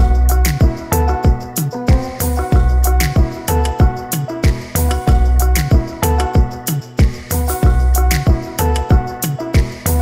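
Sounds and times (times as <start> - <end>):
pitch-falling bass drum: 0.0 - 0.8, 1.9 - 3.3, 4.5 - 5.8, 7.6 - 8.2
repeating music tune: 0.0 - 10.0.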